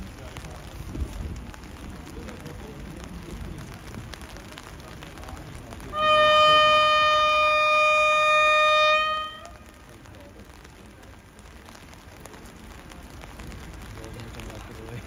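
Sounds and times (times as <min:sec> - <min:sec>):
background murmur: 0:00.0 - 0:15.0
locomotive air horn: 0:05.9 - 0:09.6.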